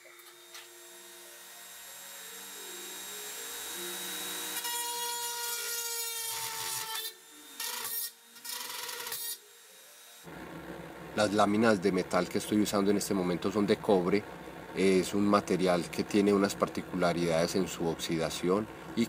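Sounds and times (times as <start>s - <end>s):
rotary tool grinding copper: 0.0s - 10.3s.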